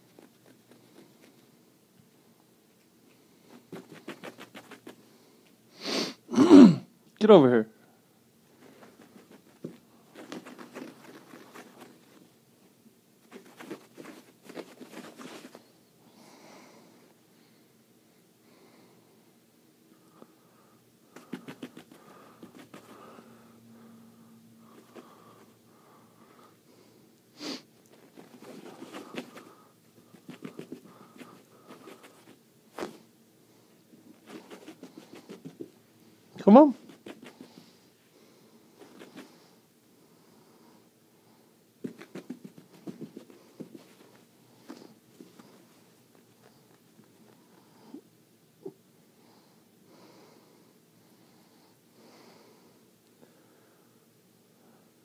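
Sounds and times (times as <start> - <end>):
prairie dog sniffing and snorting: 0.0 - 1.6, 3.3 - 5.4, 8.5 - 12.4, 13.2 - 15.8, 21.0 - 24.0, 24.6 - 25.6, 27.4 - 33.1, 34.0 - 35.8, 36.7 - 39.6, 41.8 - 48.8
patter and scratching on carpet: 0.0 - 2.1, 3.0 - 5.6, 8.5 - 15.8, 21.1 - 23.3, 24.6 - 25.6, 27.8 - 39.6, 41.8 - 48.0.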